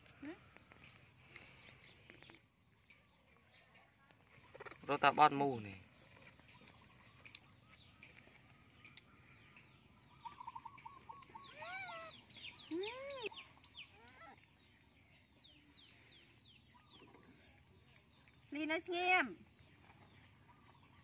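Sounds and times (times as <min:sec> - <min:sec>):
birds chirping: 0:00.0 - 0:21.0
rising and falling bird calls: 0:06.4 - 0:14.7.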